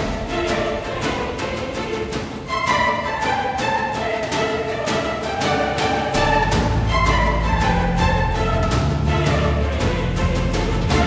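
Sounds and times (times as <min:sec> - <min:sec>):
bowed string music: 0:00.0 - 0:11.0
low bass line: 0:06.2 - 0:11.0.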